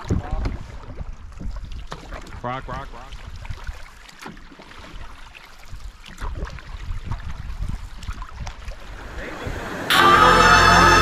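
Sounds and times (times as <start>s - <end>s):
wind rumbling on microphone: 0.0s - 4.0s, 5.6s - 9.9s
paddles splashing in water: 0.0s - 10.1s
music: 9.9s - 11.0s.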